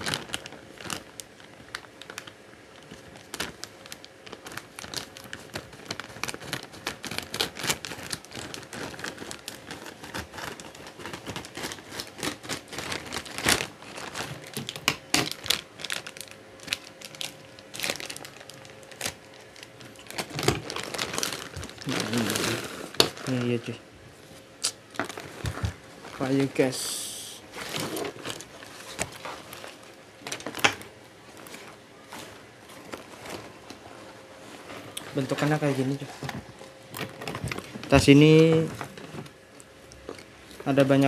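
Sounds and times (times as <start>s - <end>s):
plastic bag crinkling: 0.0s - 26.8s, 27.4s - 41.0s
scissors cutting plastic: 4.3s - 15.6s.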